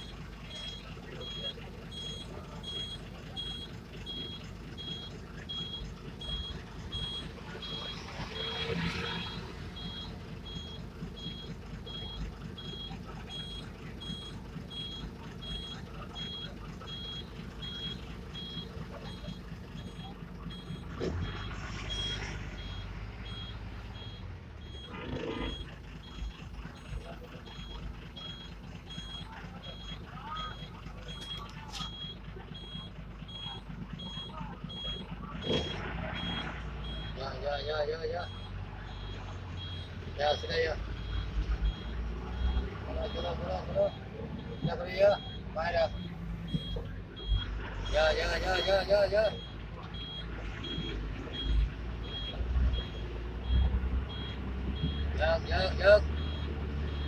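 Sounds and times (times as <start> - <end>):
bus engine running: 0.0 - 57.0
vehicle reversing alarm beeping: 0.0 - 57.0.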